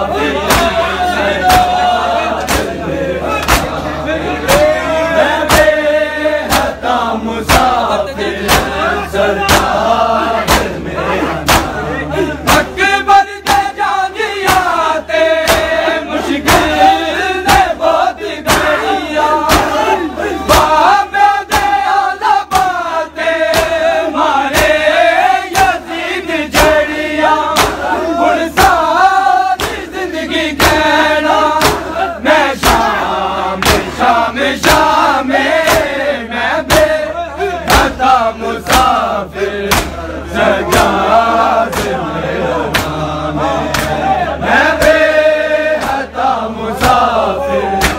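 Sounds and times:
men chanting in unison: 0:00.0 - 0:47.9
hands slapping bare chests: 0:02.4 - 0:02.8, 0:03.4 - 0:03.8, 0:06.4 - 0:06.8, 0:07.4 - 0:07.8, 0:08.5 - 0:08.8, 0:09.5 - 0:09.8, 0:10.4 - 0:10.8, 0:11.4 - 0:11.8, 0:13.4 - 0:13.8, 0:14.4 - 0:14.8, 0:15.4 - 0:15.8, 0:17.4 - 0:17.8, 0:18.4 - 0:18.8, 0:21.4 - 0:22.9, 0:23.5 - 0:23.9, 0:24.5 - 0:24.9, 0:25.5 - 0:25.8, 0:26.5 - 0:26.9, 0:27.5 - 0:27.9, 0:29.6 - 0:31.9, 0:32.6 - 0:33.0, 0:33.6 - 0:34.0, 0:34.6 - 0:35.0, 0:35.6 - 0:36.0, 0:37.7 - 0:38.0, 0:38.6 - 0:39.0, 0:39.7 - 0:40.0, 0:41.7 - 0:42.0, 0:42.7 - 0:43.0, 0:43.7 - 0:44.0, 0:45.8 - 0:46.1, 0:46.8 - 0:47.1.

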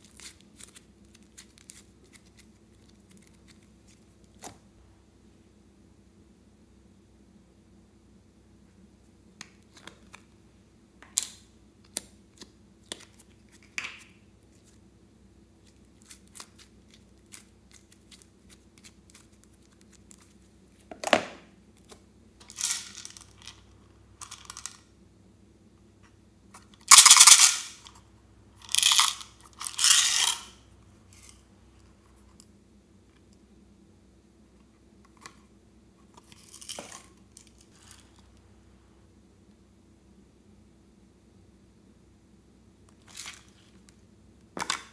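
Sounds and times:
slime squelching: 0:15.6 - 0:20.9.

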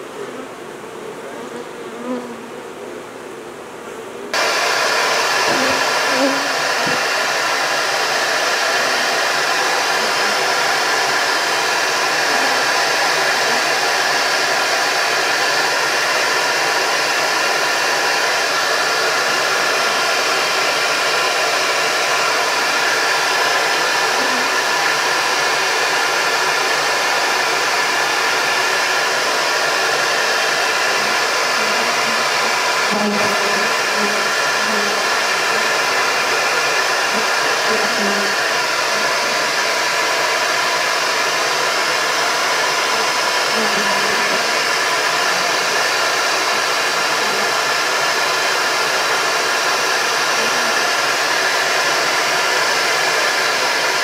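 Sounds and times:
honeybees buzzing: 0:00.0 - 0:14.8, 0:28.4 - 0:40.0
vacuum motor running: 0:04.3 - 0:54.0.

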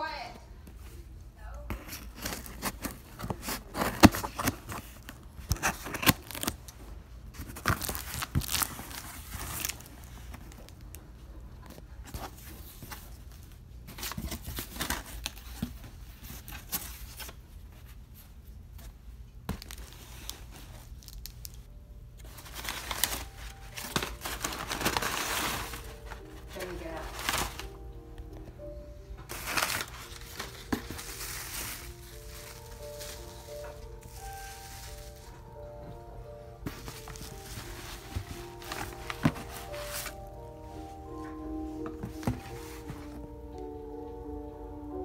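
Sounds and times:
packing paper crinkling: 0:01.8 - 0:17.5, 0:19.5 - 0:27.8, 0:29.3 - 0:35.7, 0:36.6 - 0:43.2
packing tape ripping off cardboard: 0:01.9 - 0:06.7, 0:07.4 - 0:10.8.

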